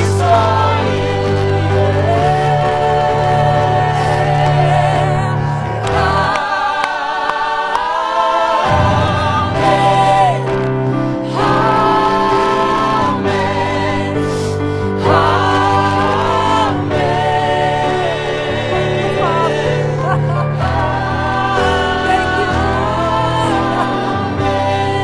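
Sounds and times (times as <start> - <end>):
group singing worship song: 0.0 - 25.0
low held accompaniment notes: 8.7 - 11.1.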